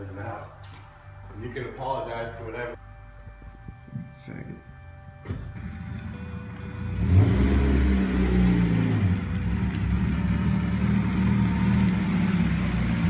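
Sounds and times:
car engine running: 5.3 - 13.0.

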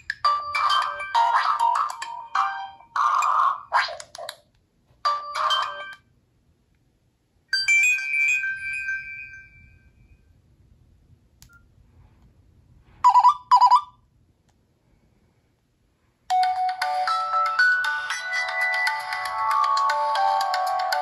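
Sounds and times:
ringtone snippet: 0.2 - 3.2, 5.1 - 6.0, 13.0 - 13.9
ringing chime: 7.5 - 10.3.

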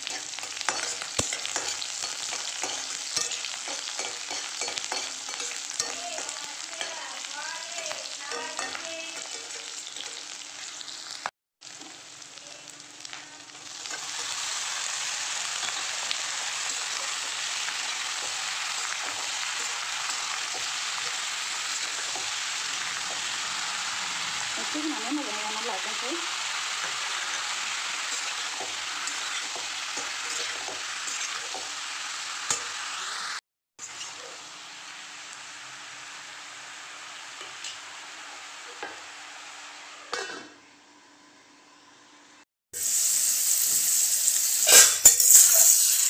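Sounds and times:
food frying in hot oil: 0.0 - 40.5, 42.8 - 46.0.

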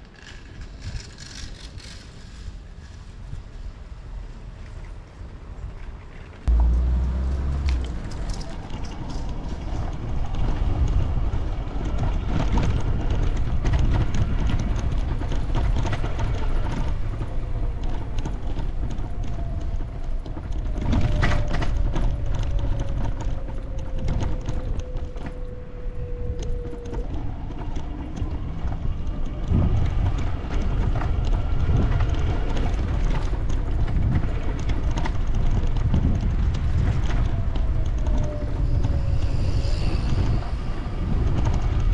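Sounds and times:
steady low rumble: 6.4 - 20.6, 27.3 - 41.9
faint drone falling in pitch: 6.5 - 10.2, 37.3 - 41.9.

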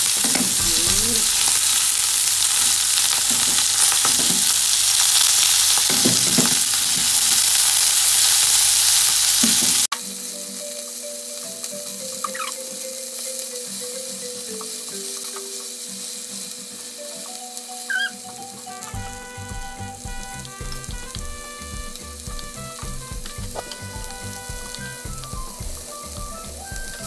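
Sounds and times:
meat sizzling in a frying pan: 0.0 - 27.0
background music melody: 0.5 - 1.4, 9.9 - 27.0.

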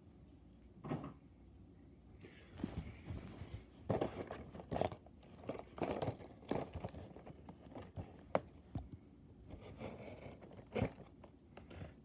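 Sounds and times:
cardboard boxes handled: 2.6 - 12.0.

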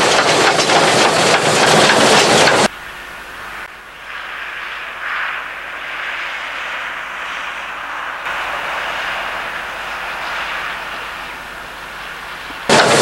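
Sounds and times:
distant steam locomotive hissing: 0.0 - 13.0.

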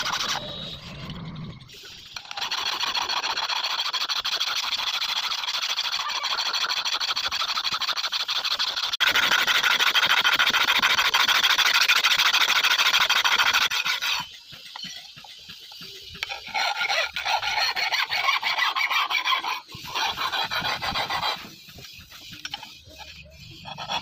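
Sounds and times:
file rasping on steel blade: 1.9 - 24.0.

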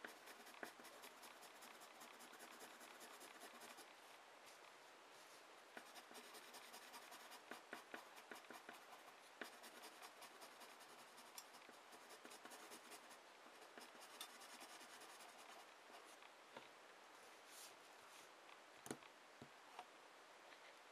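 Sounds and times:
pencil scratching on paper: 0.0 - 3.9, 5.8 - 16.2.

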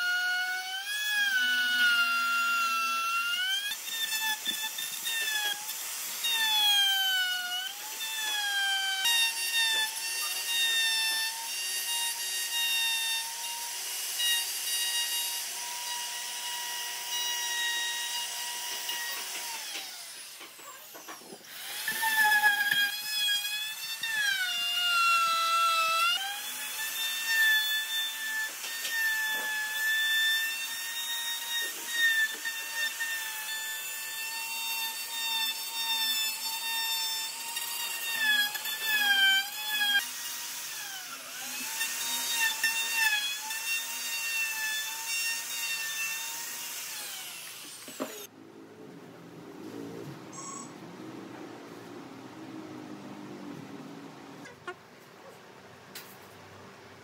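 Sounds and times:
router whining cutting wood: 0.0 - 48.3.

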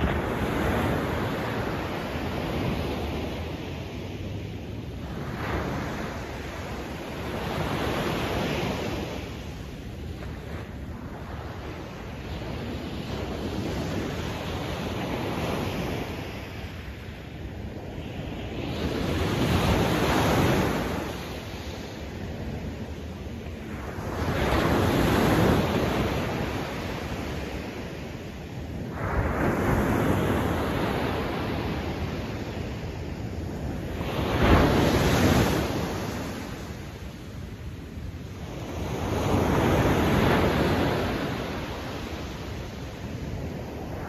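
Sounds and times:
ocean waves breaking on beach: 0.0 - 44.0.

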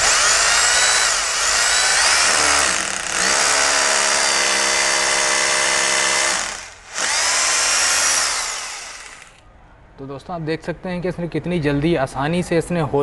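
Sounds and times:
rotary hammer drilling into wall: 0.0 - 9.4.

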